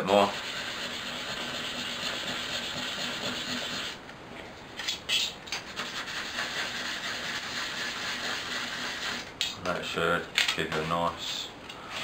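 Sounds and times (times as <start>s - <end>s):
scratchy rubbing of thin metal: 0.0s - 4.0s, 4.9s - 9.3s.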